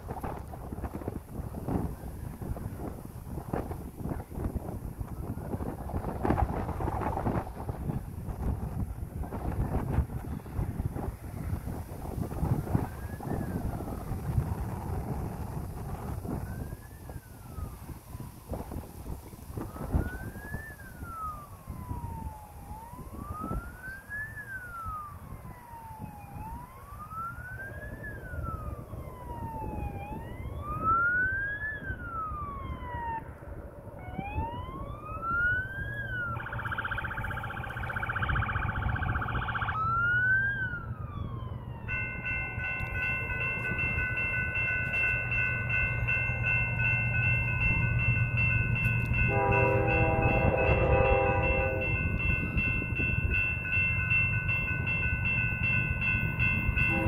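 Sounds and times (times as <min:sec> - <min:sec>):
emergency siren wailing: 0:00.0 - 0:57.0
low rumble of train: 0:00.0 - 0:57.0
train horn: 0:49.2 - 0:52.2, 0:56.8 - 0:57.0.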